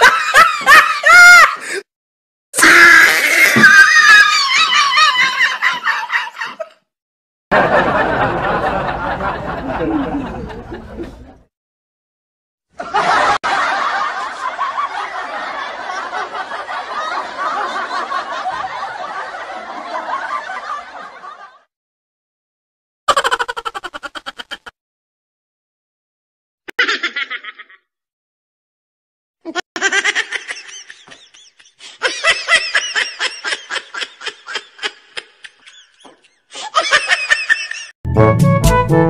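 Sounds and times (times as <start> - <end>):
laughter and chuckling: 0.0 - 1.8, 4.1 - 6.8, 7.5 - 11.5, 12.8 - 21.7, 23.1 - 24.7, 26.7 - 27.8, 29.5 - 38.0.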